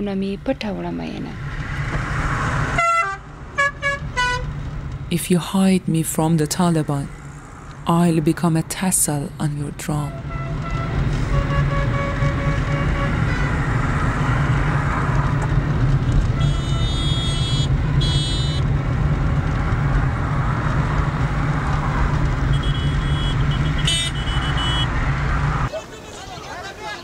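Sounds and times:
vehicle horn toots: 2.8 - 4.5, 10.0 - 13.7, 16.3 - 18.6, 22.5 - 25.0.

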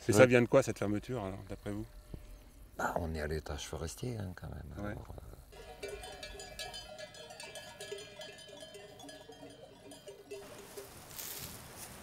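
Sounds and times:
sheep bells clanking: 5.5 - 11.5.

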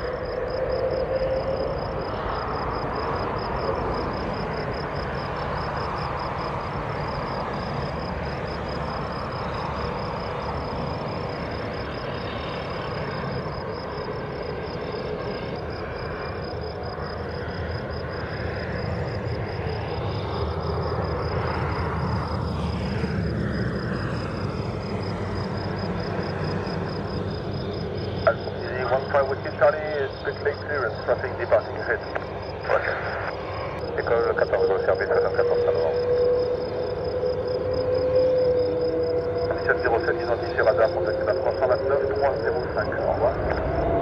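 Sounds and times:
jet engines rumbling: 0.0 - 44.0
rising jet whine: 0.0 - 44.0.

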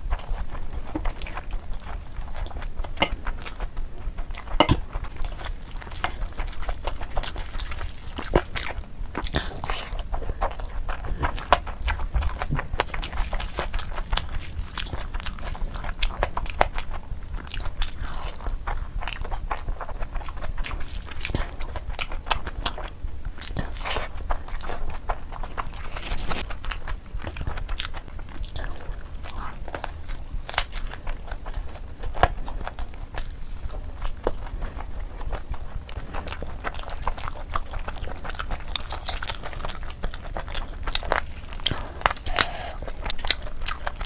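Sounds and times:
chewing and mouth clicks: 0.0 - 44.0
low steady hum: 0.0 - 44.0.

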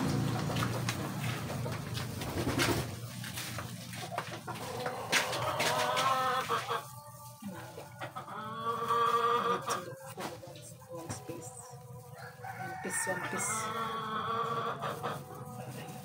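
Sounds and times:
rooster crowing: 12.0 - 15.1.

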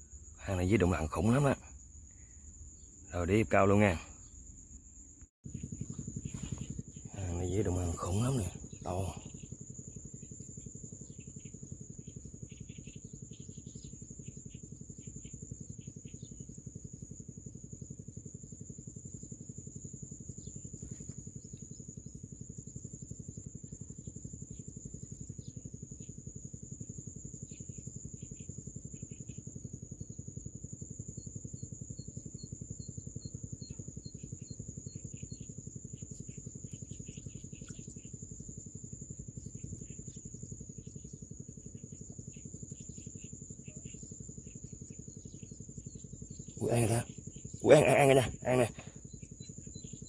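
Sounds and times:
evenly spaced ticks: 0.0 - 50.0
insect chirps: 0.0 - 50.0
insects droning: 0.0 - 50.0.

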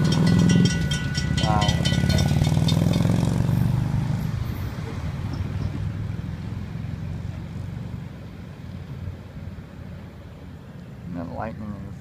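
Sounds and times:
crossing bell ringing rapidly: 0.0 - 3.6
low vehicle engine rumble: 0.0 - 12.0.

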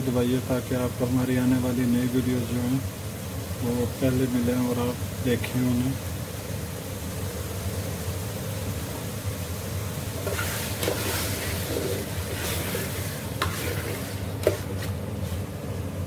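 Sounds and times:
steady sizzle: 0.0 - 16.0
spoon scraping through food: 10.2 - 15.4.

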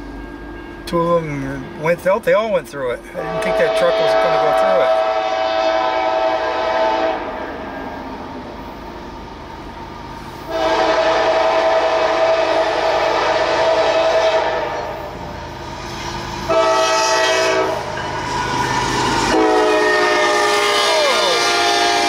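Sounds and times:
locomotive air horn blasts: 3.2 - 7.6, 10.5 - 15.0, 16.4 - 17.9, 19.0 - 22.0.

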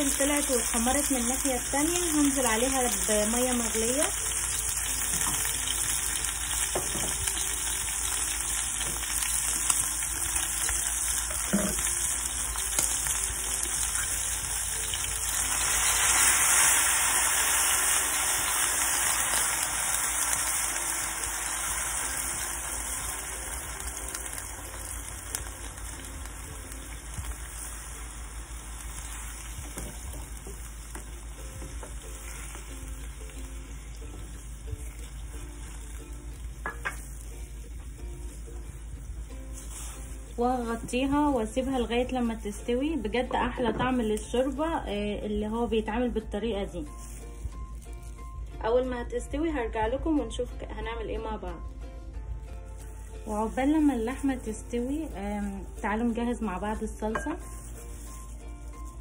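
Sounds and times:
meat sizzling in a pan: 0.0 - 44.9, 46.7 - 48.4, 52.5 - 59.0
wooden spoon knocking on pan: 6.7 - 7.2, 29.6 - 32.0, 36.6 - 37.1.

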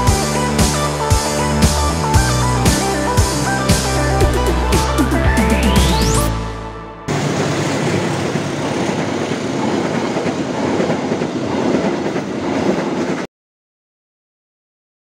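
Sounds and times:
electronic music: 0.0 - 7.2
train wheels rolling on rails: 7.1 - 13.3.

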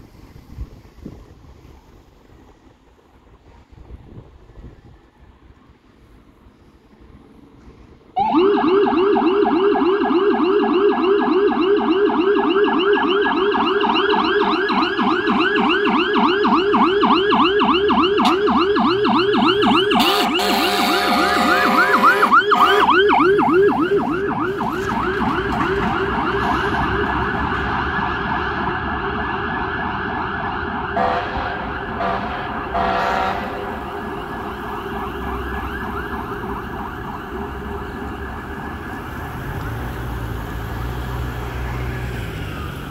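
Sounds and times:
fire engine siren yelp: 8.0 - 42.9
air horn blasts: 20.0 - 23.1, 31.0 - 33.7.

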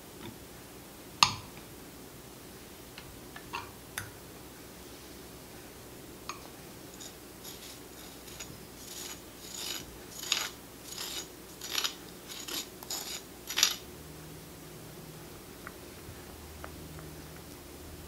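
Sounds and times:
utensil scraping stone bowl: 6.9 - 13.9.

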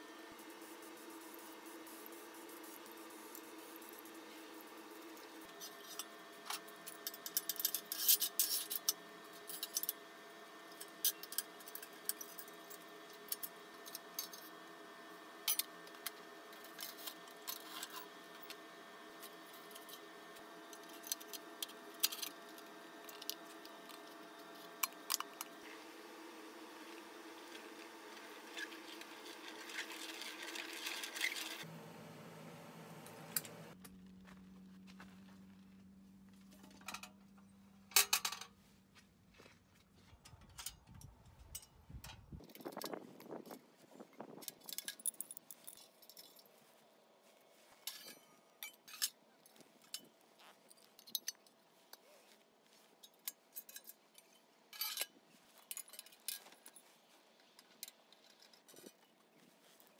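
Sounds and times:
metal parts clicking and rattling: 5.1 - 10.0, 15.5 - 18.5, 20.7 - 25.5, 28.5 - 31.6, 40.2 - 43.6, 44.3 - 46.5, 47.8 - 51.6, 53.0 - 56.8, 57.4 - 59.1.

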